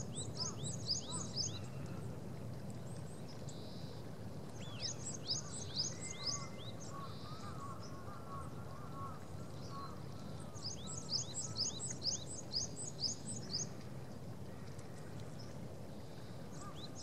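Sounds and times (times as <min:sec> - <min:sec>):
small birds chirping: 0:00.0 - 0:02.1, 0:02.7 - 0:08.0, 0:09.5 - 0:13.8
low background noise: 0:00.0 - 0:17.0.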